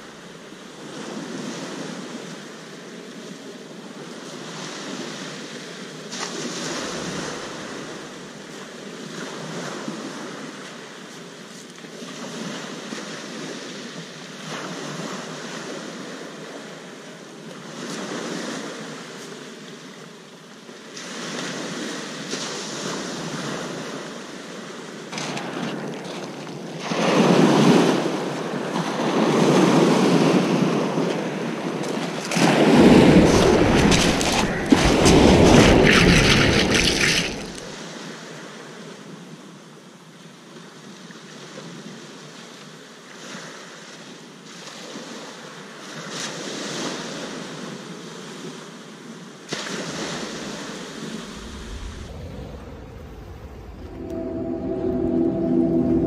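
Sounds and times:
surf on shingle beach: 4.2 - 10.8, 25.1 - 37.9, 49.5 - 56.0
wind on microphone: 32.3 - 37.8, 50.0 - 56.0.

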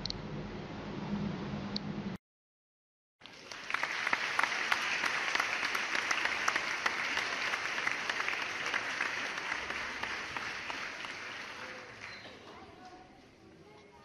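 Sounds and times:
crowd applauding: 3.2 - 12.6.

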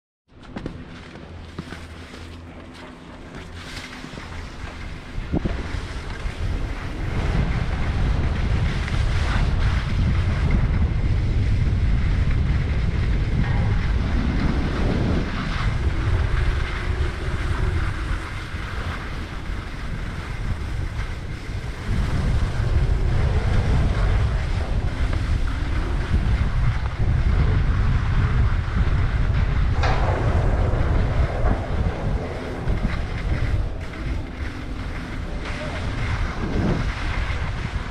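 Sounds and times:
wind buffeting microphone: 0.3 - 37.9
skis scraping over snow: 0.4 - 37.9.

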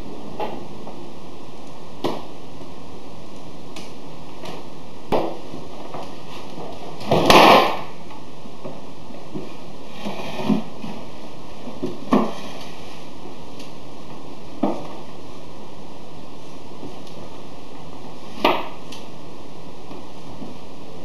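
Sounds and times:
chair scraping on wooden floor: 9.9 - 10.8.

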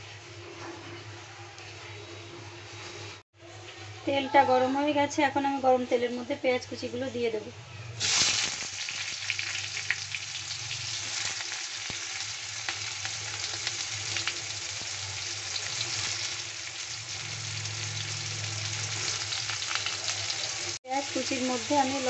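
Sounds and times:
onions sizzling in oil: 8.0 - 22.0.

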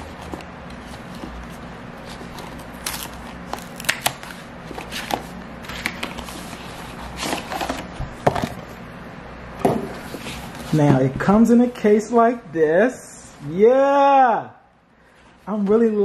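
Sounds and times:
cardboard ripping: 0.9 - 7.8.

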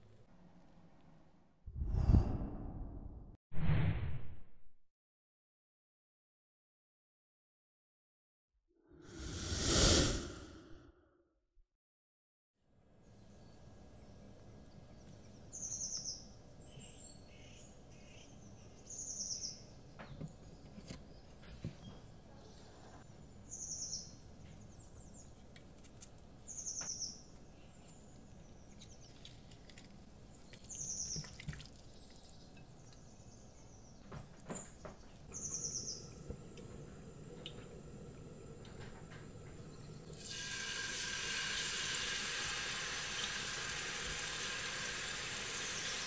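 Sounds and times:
small bird chirping: 14.9 - 19.7, 20.4 - 25.4, 26.4 - 29.6, 30.4 - 36.3.

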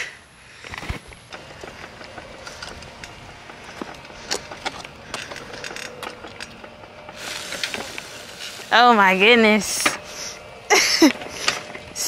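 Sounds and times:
bicycle clicking and rattling: 0.0 - 12.0.

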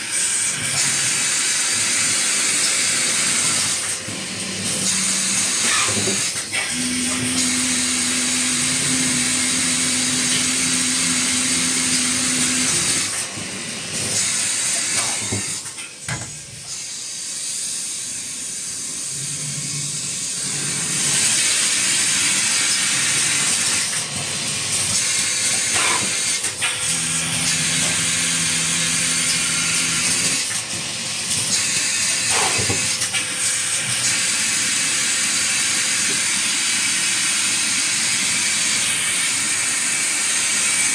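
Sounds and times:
packing machine hissing: 0.0 - 40.9.

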